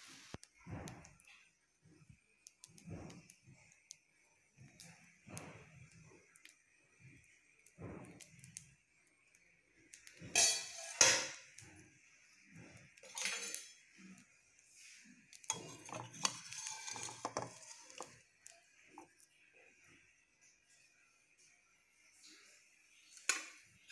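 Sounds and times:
metal pan and utensils clattering: 10.2s - 11.5s, 13.0s - 13.9s, 15.5s - 18.2s.

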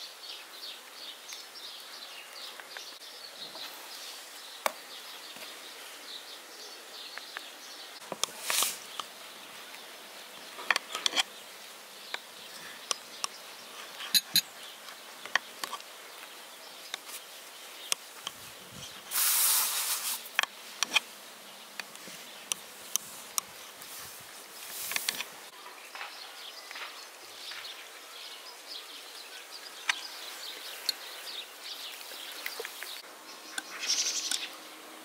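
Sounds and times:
brief rushing hiss: 19.1s - 20.3s.

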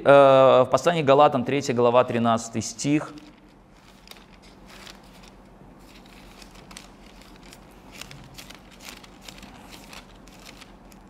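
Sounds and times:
pages rustling: 2.9s - 11.0s.

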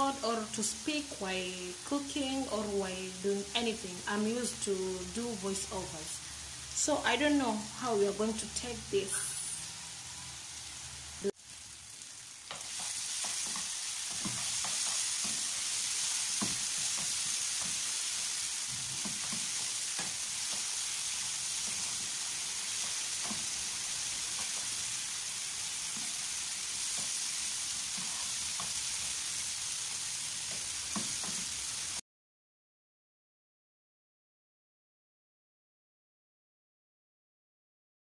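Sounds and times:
vegetables sizzling in a pan: 0.0s - 32.0s.

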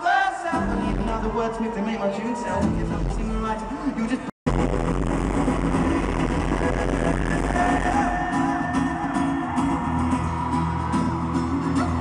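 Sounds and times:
male singer over pa: 0.0s - 4.3s, 5.6s - 9.8s
guitar: 0.0s - 12.0s.

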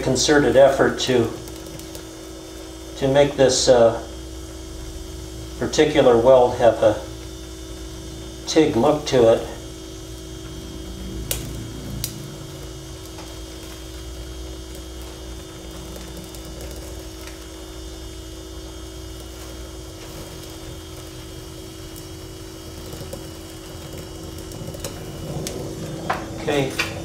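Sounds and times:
welding torch flame hissing: 0.0s - 27.0s.

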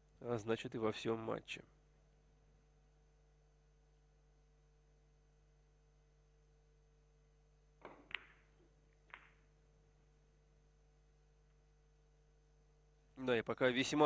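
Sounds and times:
billiard balls clicking: 7.8s - 9.7s.

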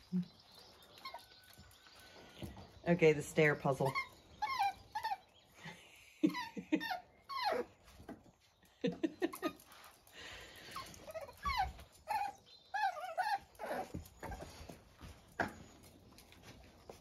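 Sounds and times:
puppies whimpering: 0.0s - 2.4s, 3.7s - 8.1s, 10.6s - 17.0s.

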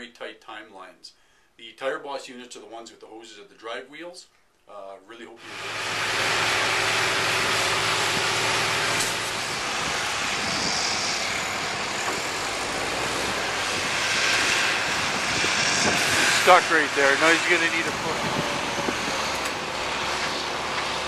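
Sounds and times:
heavy diesel machinery running: 5.4s - 21.0s
low hum: 5.4s - 21.0s.

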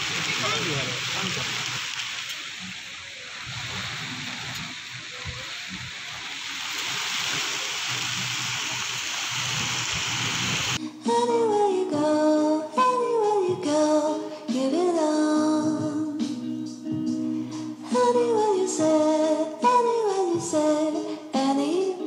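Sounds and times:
heavy rain hissing: 0.0s - 10.8s
music with singing: 10.8s - 22.0s.

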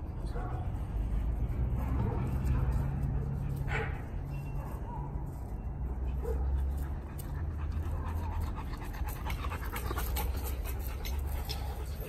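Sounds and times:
dog panting hard: 6.2s - 12.0s.

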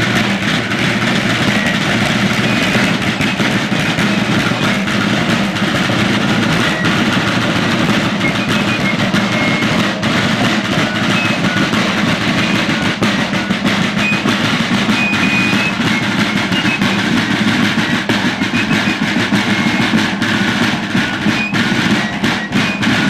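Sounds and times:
snare drum rolls: 0.0s - 23.0s.

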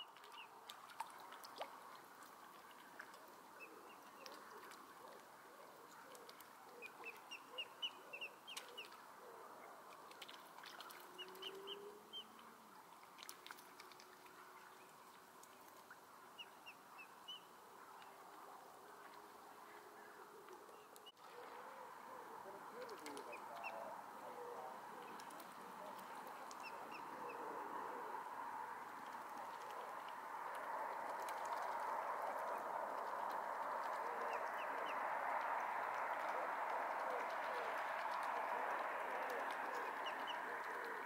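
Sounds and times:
faint background hiss: 0.0s - 41.0s
cygnets peeping: 22.4s - 23.9s, 33.0s - 41.0s.

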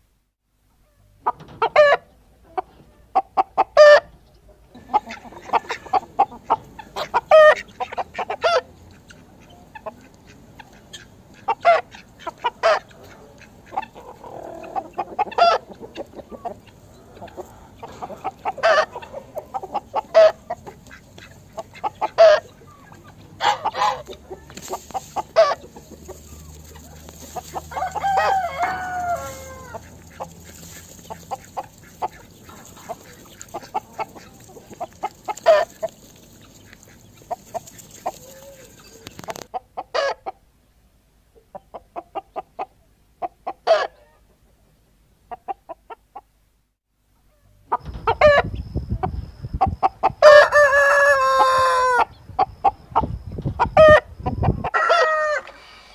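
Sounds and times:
hens clucking: 0.8s - 40.4s, 41.3s - 46.3s, 47.2s - 55.9s
rooster crowing: 26.8s - 30.0s, 50.2s - 52.1s, 54.7s - 55.9s.

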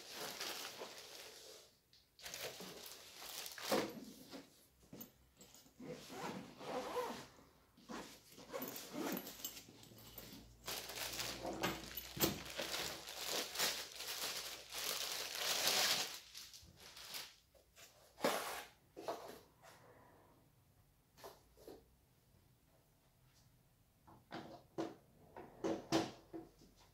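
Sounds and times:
plastic bag rustling and crinkling: 0.0s - 4.6s, 8.2s - 17.4s.

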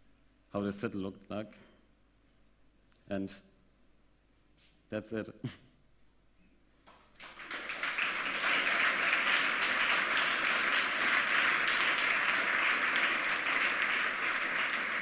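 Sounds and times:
audience clapping: 6.8s - 15.0s.

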